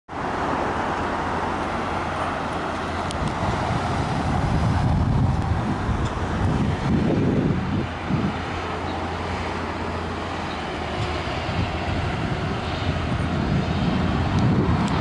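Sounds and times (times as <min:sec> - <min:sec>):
engine rumble: 0:00.1 - 0:15.0
traffic noise: 0:00.1 - 0:15.0.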